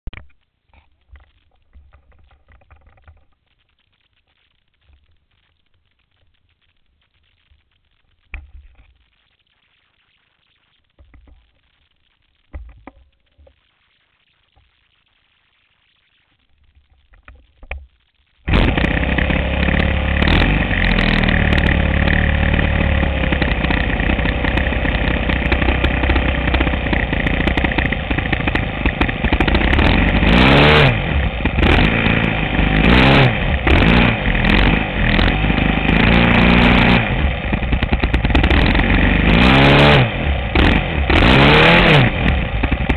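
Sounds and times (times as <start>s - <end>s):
model airplane engine running: 18.5s - 42.9s.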